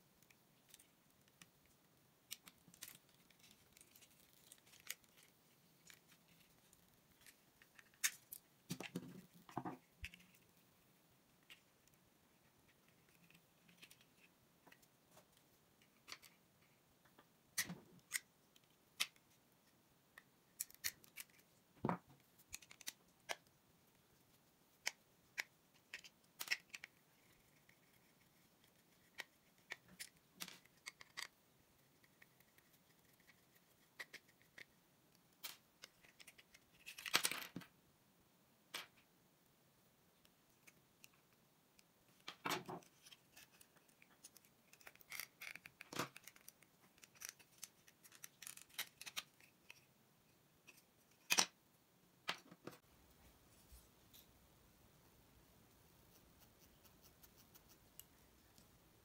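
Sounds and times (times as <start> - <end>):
plastic parts clicking: 22.5 - 23.4, 24.8 - 26.9.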